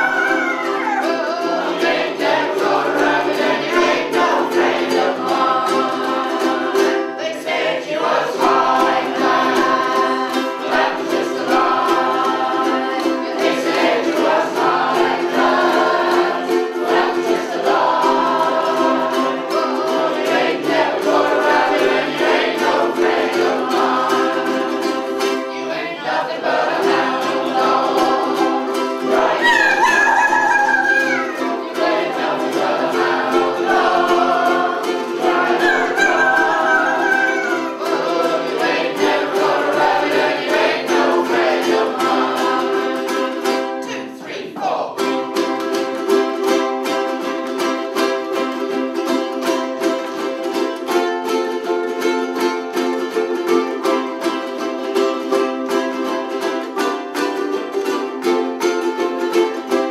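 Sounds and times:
people singing in unison: 0:00.0 - 0:47.2
ukuleles strumming: 0:00.0 - 0:59.9.

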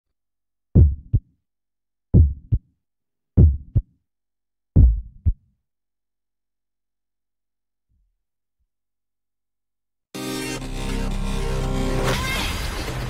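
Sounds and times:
heartbeat thumps: 0:00.8 - 0:01.2, 0:02.1 - 0:02.6, 0:03.4 - 0:03.9, 0:04.8 - 0:05.4.

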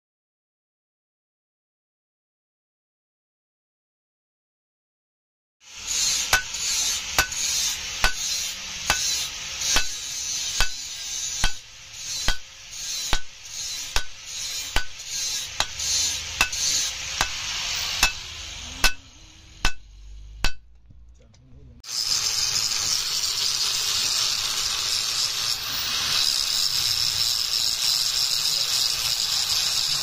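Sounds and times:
hiss: 0:05.6 - 0:20.2, 0:21.9 - 0:30.0
hammer striking steel on anvil: 0:05.8 - 0:20.7.

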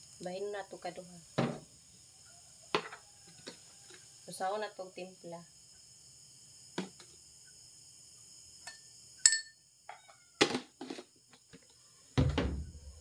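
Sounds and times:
crickets trilling: 0:00.0 - 0:13.0
containers knocking on countertop: 0:02.7 - 0:03.0, 0:12.2 - 0:12.6
glass clink: 0:08.6 - 0:09.6.

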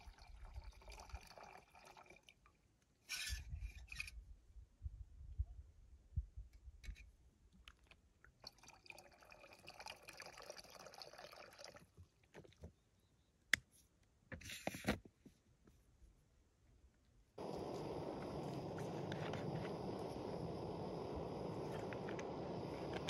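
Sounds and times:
water trickling into metal pot: 0:00.0 - 0:02.4.

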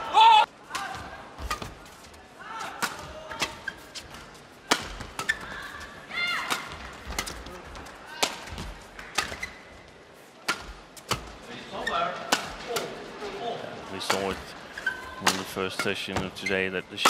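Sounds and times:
rackets hitting shuttlecock: 0:02.6 - 0:03.6, 0:04.6 - 0:05.7, 0:06.3 - 0:09.5, 0:10.4 - 0:11.3, 0:12.2 - 0:13.0, 0:14.0 - 0:16.4.

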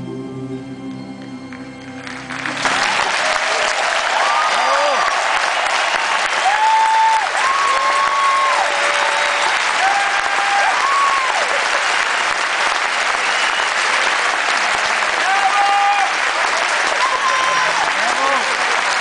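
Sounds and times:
audience applauding: 0:01.5 - 0:19.0
crowd calling out: 0:02.6 - 0:11.6, 0:15.1 - 0:18.6.

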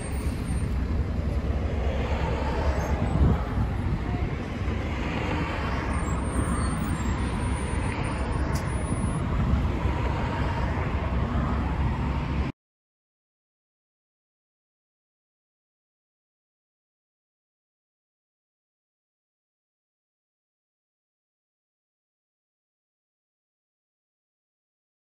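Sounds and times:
yard traffic noise: 0:00.0 - 0:12.5.

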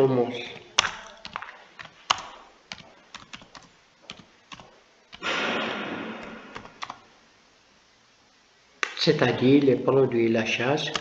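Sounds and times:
hiss of noise: 0:05.2 - 0:06.8.

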